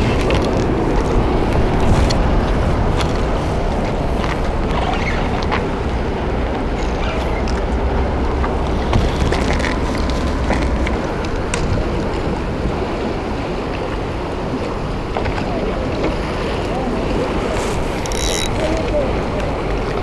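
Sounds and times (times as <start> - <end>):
low rumble: 0.0 - 13.7
harbour-side noise: 0.0 - 20.0
wind buffeting microphone: 0.0 - 20.0.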